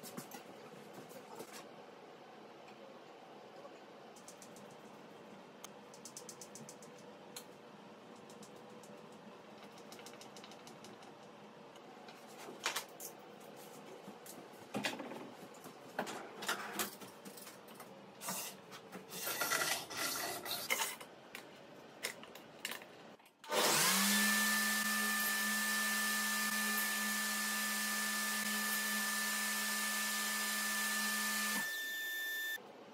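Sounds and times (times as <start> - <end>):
table saw motor running: 23.5 - 32.6.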